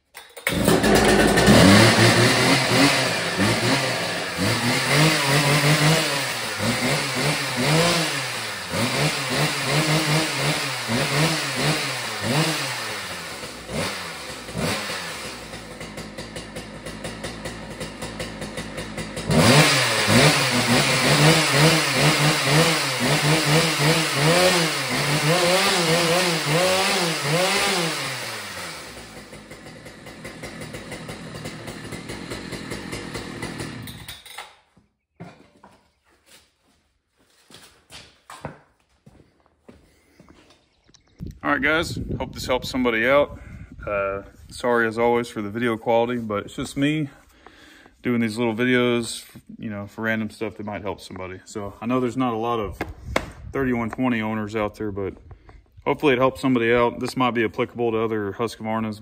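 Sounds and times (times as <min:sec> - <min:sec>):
chainsaw revving: 0:00.4 - 0:34.2.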